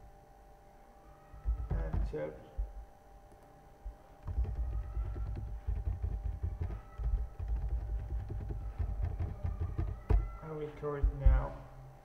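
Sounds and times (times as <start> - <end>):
faint steady hum: 0.0 - 12.0
rapid keyboard typing: 1.4 - 2.2, 4.2 - 10.4.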